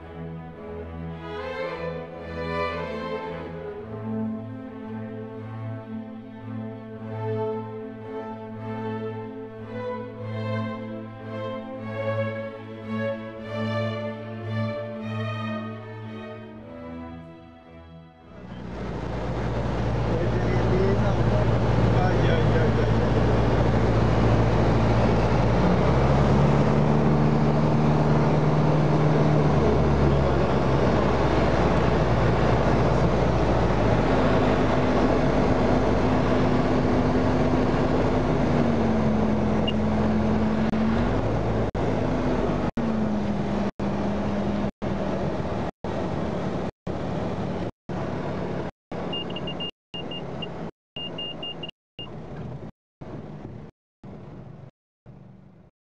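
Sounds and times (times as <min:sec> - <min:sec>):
propeller aircraft engine droning: 0:18.3 - 0:50.7
high beeps: 0:49.1 - 0:52.1.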